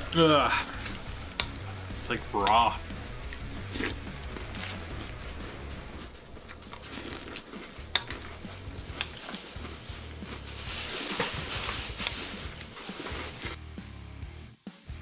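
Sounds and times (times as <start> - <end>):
crunching and chewing cereal: 3.2 - 13.6.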